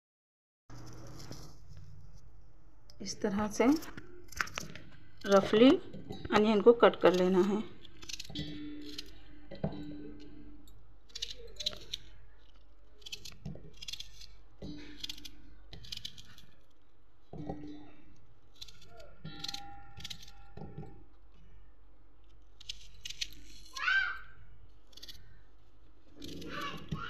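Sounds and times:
knife crunching through onion: 0:07.0 - 0:09.2, 0:11.1 - 0:16.8, 0:26.0 - 0:27.0.

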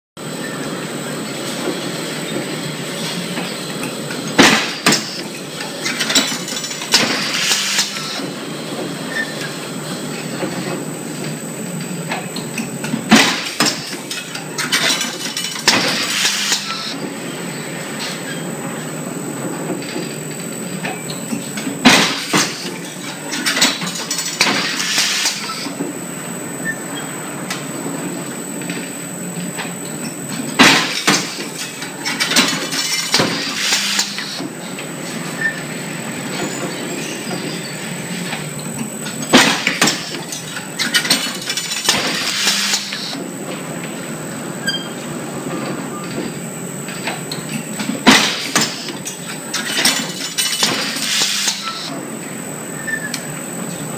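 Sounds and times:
steady machine hum: 0:00.2 - 0:53.9
machine mechanism clattering: 0:04.3 - 0:08.3, 0:12.8 - 0:16.9, 0:30.6 - 0:34.4, 0:39.1 - 0:43.1.

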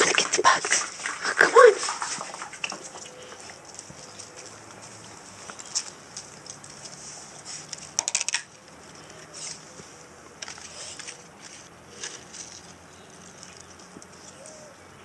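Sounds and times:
plastic tub clicking and rattling: 0:07.8 - 0:08.6.

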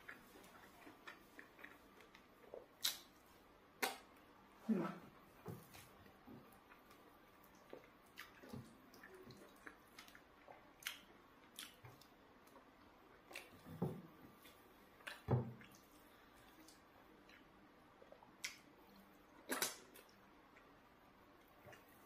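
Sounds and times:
chewing mouth sounds: 0:06.6 - 0:13.7.

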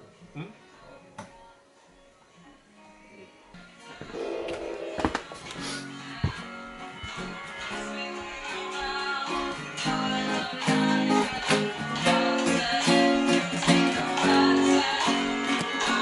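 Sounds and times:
guitar strummed chords: 0:04.0 - 0:05.2.

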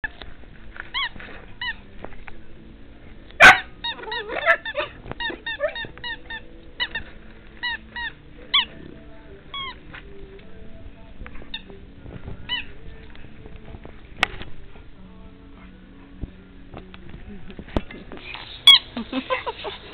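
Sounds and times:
faint background music: 0:00.0 - 0:19.9
squeaky dog toy squeaking: 0:03.4 - 0:08.8, 0:18.6 - 0:18.9.

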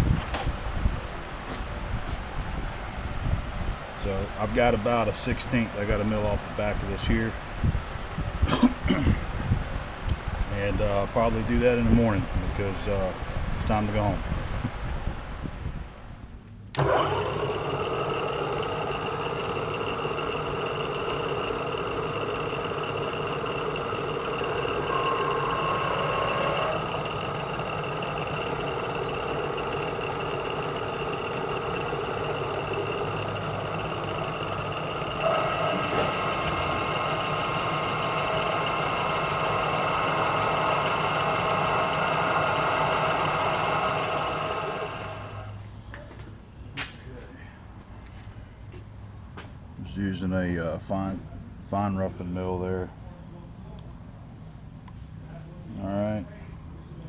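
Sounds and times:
milling machine whine: 0:16.8 - 0:45.6.

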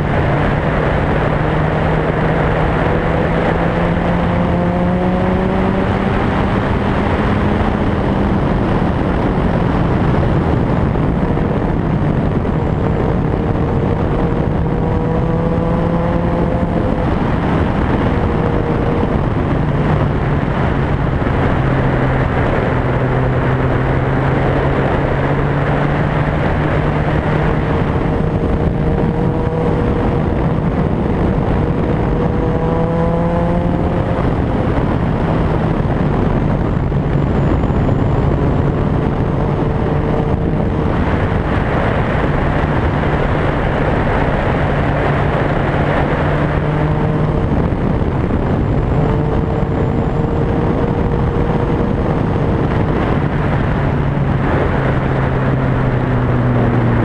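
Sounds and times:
constant rushing noise: 0:00.0 - 0:57.0
motorcycle engine running: 0:00.0 - 0:57.0.

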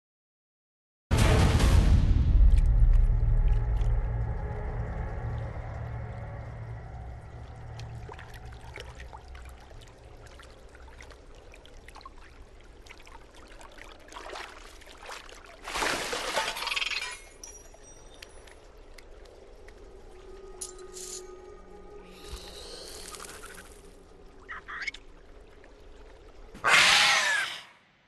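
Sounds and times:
water lapping and dripping: 0:02.3 - 0:27.2
water splashing: 0:02.4 - 0:20.5.

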